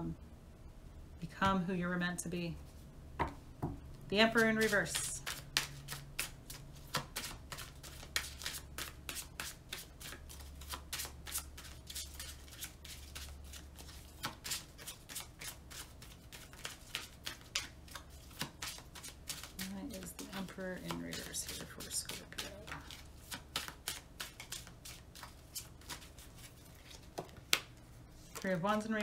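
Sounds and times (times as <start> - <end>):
cards being shuffled: 4.3 - 29.0.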